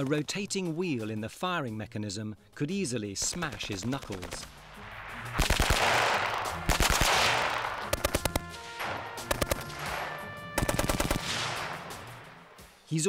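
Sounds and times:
machine gun bursts: 6.7s - 11.7s.

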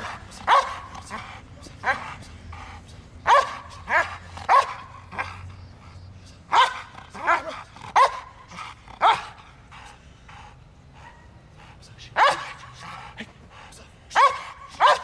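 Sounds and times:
dog barking sharply: 0.0s - 0.9s, 3.2s - 5.3s, 6.5s - 8.3s, 9.0s - 9.3s, 12.2s - 12.6s, 14.1s - 15.0s.

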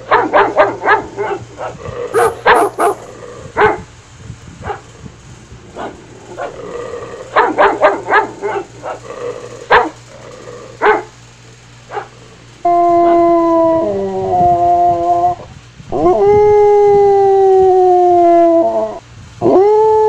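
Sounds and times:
dog barking and yipping: 0.0s - 3.9s, 4.6s - 5.0s, 5.8s - 11.2s, 11.8s - 12.3s.

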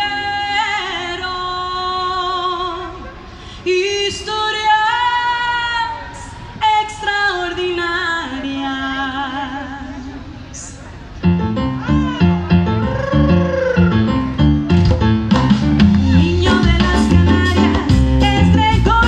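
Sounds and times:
woman singing with vibrato: 0.0s - 10.5s, 16.0s - 19.0s.

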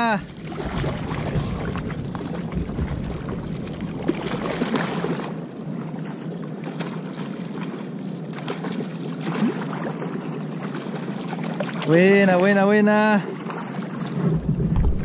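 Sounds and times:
wind buffeting microphone: 0.0s - 5.1s, 14.1s - 15.0s
water lapping around kayak: 0.0s - 15.0s
fish thrashing splashes: 0.3s - 5.4s.

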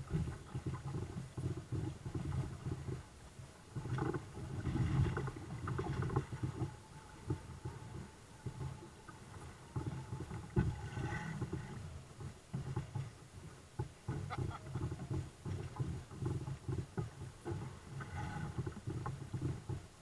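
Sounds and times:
water lapping against hulls: 0.0s - 20.0s.

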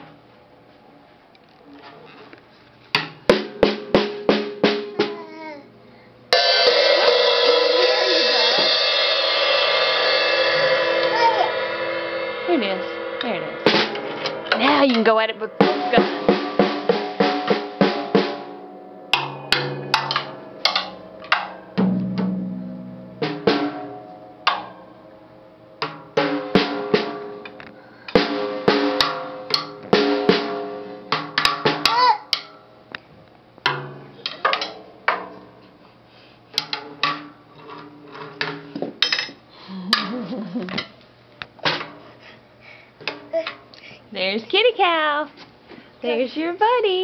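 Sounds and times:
drum kit hits: 3.2s - 5.3s, 6.3s - 25.2s, 25.8s - 32.6s, 33.6s - 35.4s.

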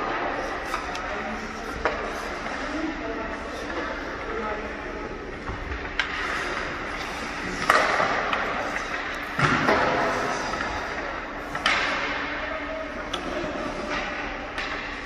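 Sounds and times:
hockey stick striking puck: 5.3s - 6.8s, 7.4s - 12.3s, 13.1s - 15.0s.

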